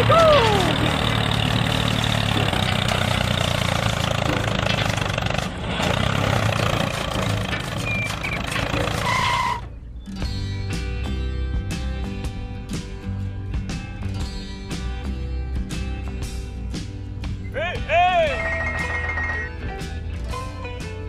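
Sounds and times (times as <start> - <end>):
tractor engine running: 0.0 - 11.0, 18.3 - 21.0.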